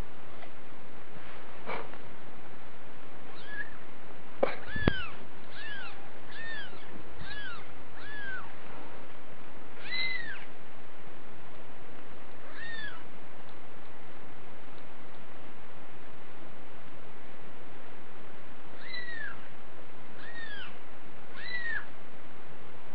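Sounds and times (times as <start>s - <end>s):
kittens mewing: 3.3s - 3.8s, 4.5s - 8.5s, 9.8s - 10.5s, 12.4s - 13.1s, 18.8s - 19.4s, 20.2s - 21.9s.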